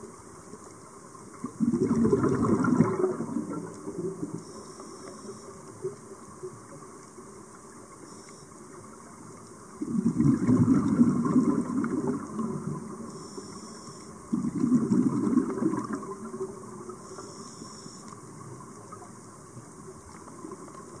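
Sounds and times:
exhaled bubbles rushing: 1.4 - 4.4, 9.8 - 13.1, 14.3 - 17.0
regulator inhalation hiss: 4.4 - 5.6, 13.1 - 14.2, 17.0 - 18.2.

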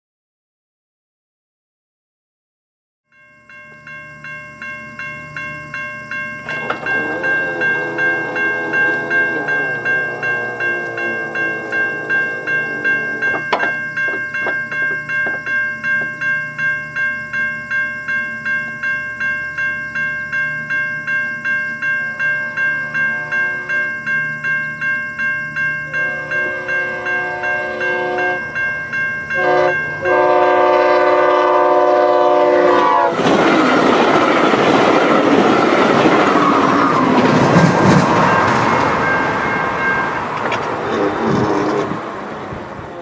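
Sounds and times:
level crossing bell ringing: 3.1 - 43.0
low wavering tone sliding down: 6.4 - 13.6.

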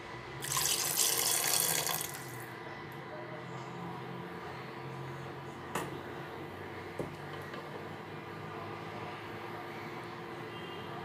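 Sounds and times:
water pouring: 0.4 - 2.4.

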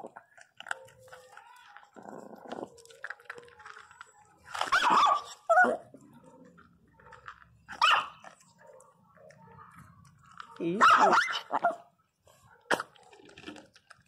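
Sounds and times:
small dog barking angrily: 4.7 - 5.8, 7.7 - 8.2, 10.8 - 11.8.

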